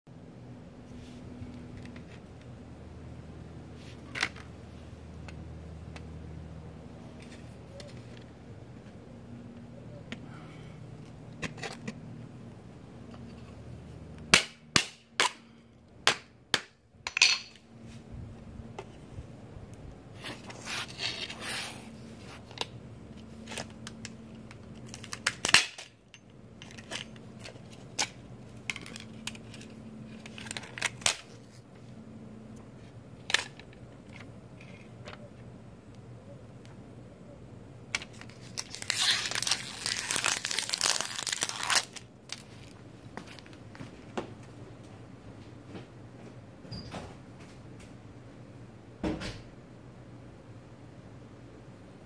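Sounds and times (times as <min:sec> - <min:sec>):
thin disk crinkling: 0:20.2 - 0:31.9, 0:37.9 - 0:43.7
plastic shell cracking: 0:38.0 - 0:42.4.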